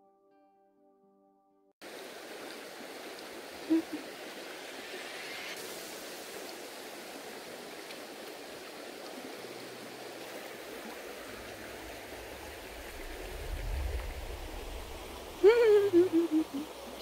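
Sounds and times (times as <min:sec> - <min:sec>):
stream running over gravel: 0:01.8 - 0:17.0
low rumble: 0:12.3 - 0:16.6.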